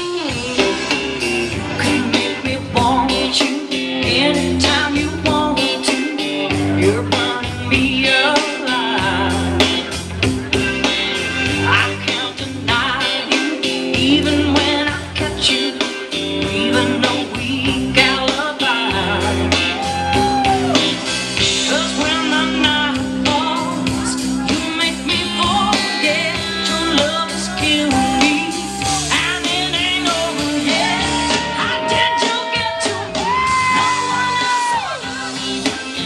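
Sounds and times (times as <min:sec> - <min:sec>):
rock and roll song over sound system: 0:00.0 - 0:36.0.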